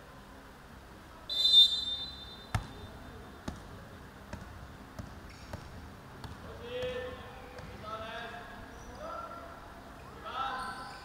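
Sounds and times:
referee whistle blast: 0:01.3 - 0:02.5
basketball bouncing on wooden floor: 0:02.5 - 0:02.8, 0:03.4 - 0:07.8.

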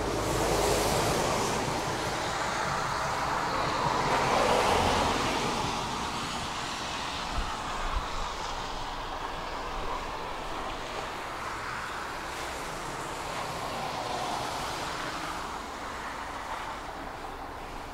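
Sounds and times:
tram rumbling along track: 0:00.0 - 0:17.9.

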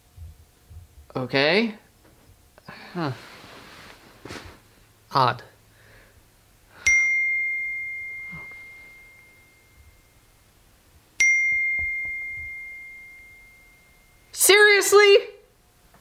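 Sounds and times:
phone notification dings: 0:06.9 - 0:10.0, 0:11.2 - 0:14.2.

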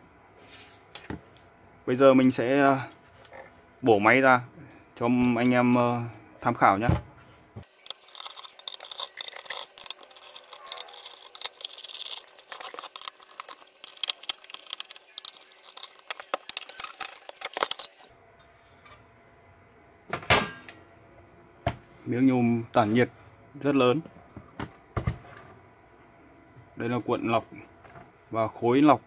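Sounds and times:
screwdriver clicks and scrapes: 0:07.6 - 0:18.1
small screws clinking: 0:07.6 - 0:18.1.

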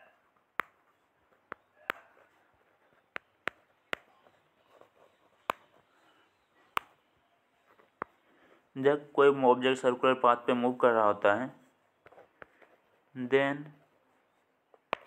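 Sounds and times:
faint room hiss: 0:00.0 - 0:15.0
stylus tapping on glass screen: 0:00.6 - 0:02.2.

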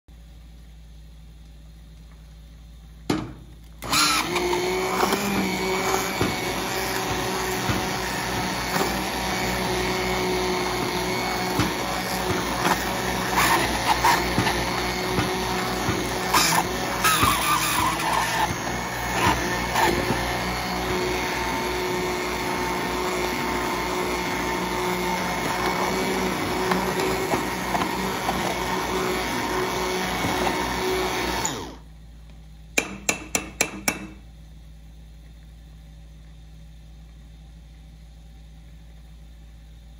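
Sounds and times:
immersion blender motor whine: 0:03.8 - 0:31.9.

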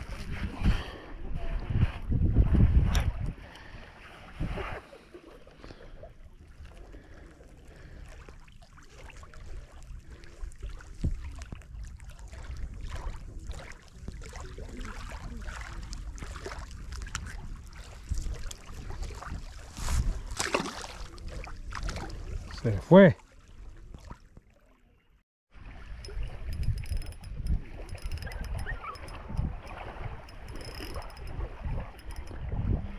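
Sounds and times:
wind rumbling on microphone: 0:00.0 - 0:04.9, 0:08.8 - 0:22.9, 0:25.6 - 0:32.9.

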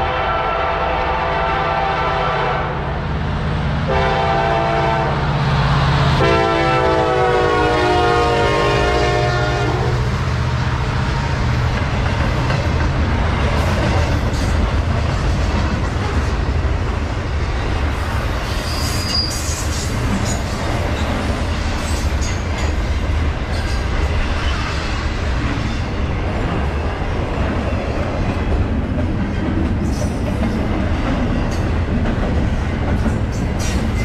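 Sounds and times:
train air horn blasts: 0:00.0 - 0:02.9, 0:03.9 - 0:05.3, 0:06.0 - 0:10.1
rail cars rumbling and clattering: 0:00.0 - 0:34.0.

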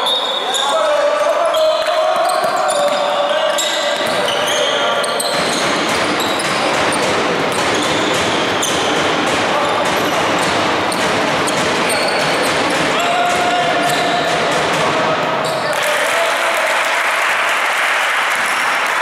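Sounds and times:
sneakers squeaking: 0:00.0 - 0:15.8
spectators' voices: 0:00.0 - 0:19.0
basketball bouncing: 0:04.0 - 0:15.0.

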